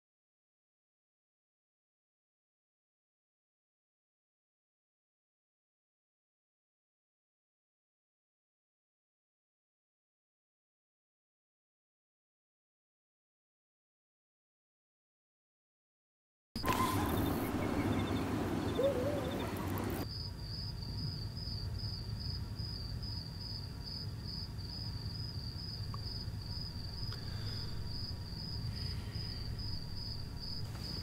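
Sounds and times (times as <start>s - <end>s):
low hum: 16.6s - 20.0s, 24.6s - 31.0s
crickets chirping: 16.6s - 31.0s.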